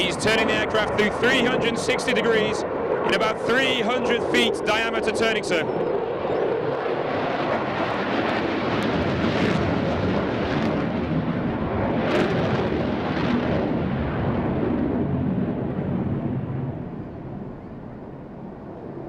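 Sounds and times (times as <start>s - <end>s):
afterburner crackles: 0.0s - 18.8s
jet engine rushing: 0.0s - 19.0s.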